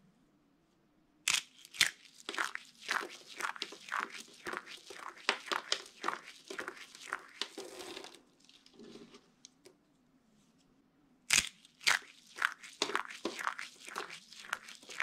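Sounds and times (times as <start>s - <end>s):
soap crunching in hands: 1.3s - 9.0s, 11.3s - 15.0s.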